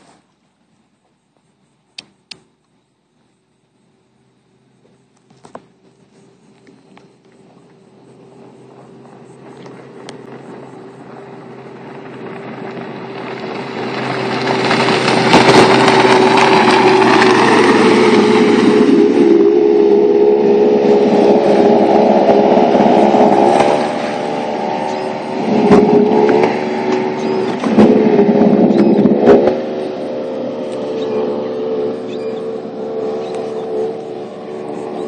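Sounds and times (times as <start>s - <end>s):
outboard engine at high speed: 3.5s - 35.0s
rush of spray: 8.6s - 35.0s.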